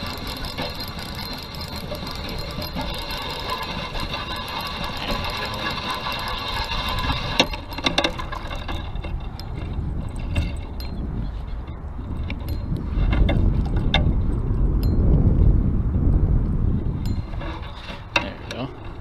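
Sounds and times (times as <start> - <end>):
fishing reel whirring: 0.0 - 15.1
reel clicks: 0.0 - 15.2
wind rumble on microphone: 0.0 - 19.0.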